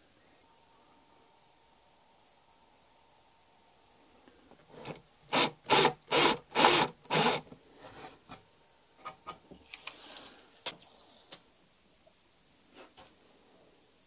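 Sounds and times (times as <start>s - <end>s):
cordless drill whining: 4.8s - 7.5s.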